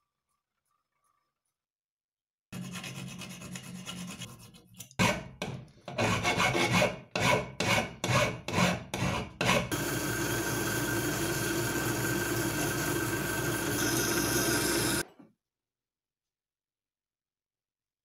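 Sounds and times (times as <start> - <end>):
file rasping on metal: 2.6 - 9.8.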